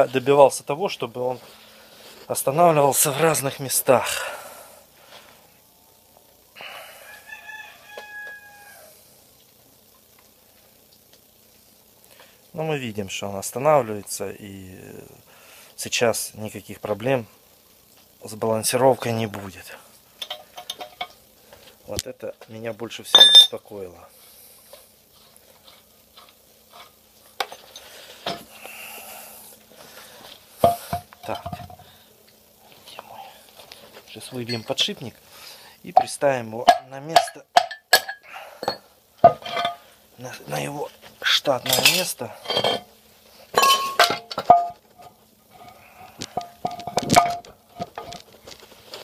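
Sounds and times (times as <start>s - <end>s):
rooster crowing in the distance: 6.6s - 9.1s
metal parts clicking and clinking: 20.2s - 21.2s, 23.1s - 23.6s, 36.0s - 39.8s, 41.6s - 42.9s, 43.6s - 49.0s.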